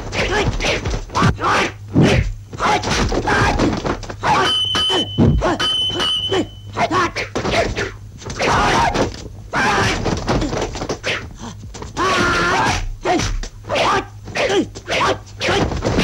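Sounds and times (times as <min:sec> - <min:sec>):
fighters yelling and grunting: 0:00.1 - 0:07.3, 0:12.0 - 0:15.8.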